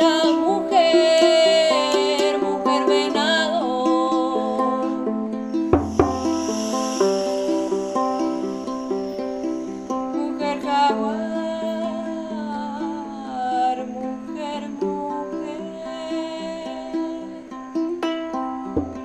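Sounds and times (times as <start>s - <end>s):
person singing: 0.0s - 17.6s
ukulele plucked: 0.0s - 19.0s.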